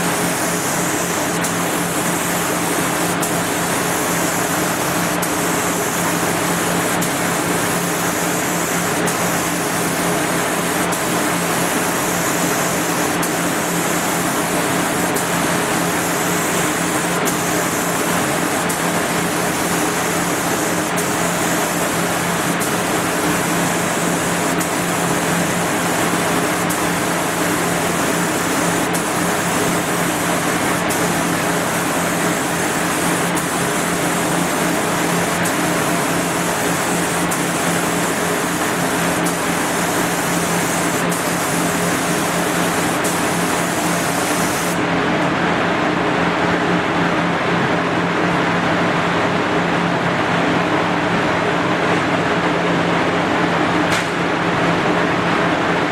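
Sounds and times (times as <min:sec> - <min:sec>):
spray gun hissing: 0:00.0 - 0:44.8
fan-like hum: 0:00.0 - 0:55.9.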